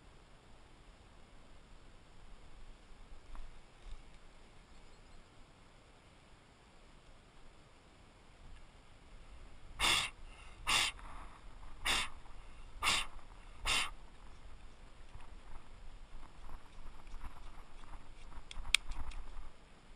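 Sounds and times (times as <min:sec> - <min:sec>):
man puffing breath: 0:09.8 - 0:14.0.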